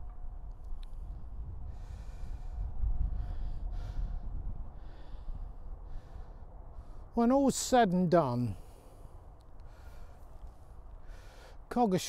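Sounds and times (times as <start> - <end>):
wind rumbling on microphone: 0.0 - 11.7
person breathing: 1.6 - 7.2, 8.6 - 11.7.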